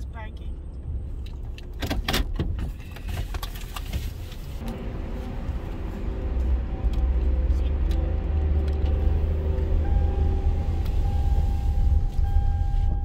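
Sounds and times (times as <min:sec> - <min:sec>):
car engine running: 0:04.6 - 0:13.0.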